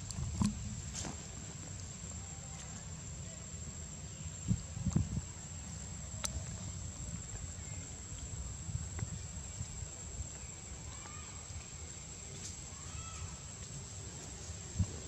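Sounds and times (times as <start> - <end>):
steady low rumble: 0.0 - 2.3.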